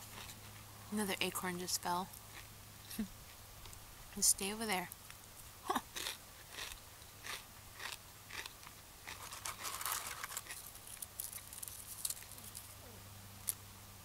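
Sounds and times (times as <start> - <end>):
person chewing crunchy food: 0.0 - 0.6, 5.8 - 12.6.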